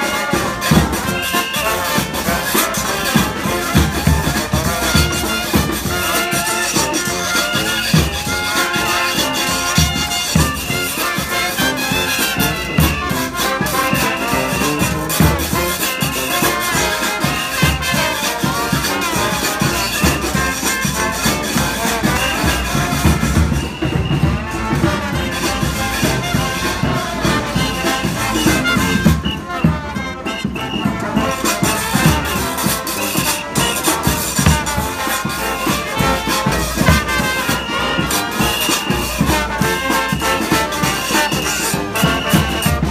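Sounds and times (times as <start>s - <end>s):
brass band playing: 0.0s - 42.9s
drum hits: 33.6s - 37.3s.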